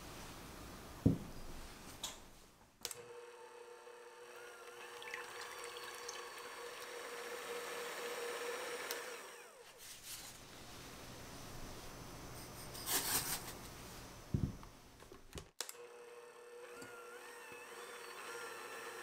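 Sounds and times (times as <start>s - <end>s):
electric hand mixer whirring: 3.0s - 9.6s, 15.8s - 19.0s.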